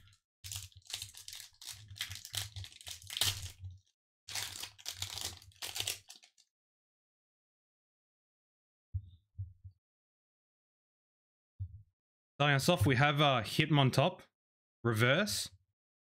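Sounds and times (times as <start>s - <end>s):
foil wrapper crinkling and tearing: 0.0s - 3.6s, 4.3s - 6.4s.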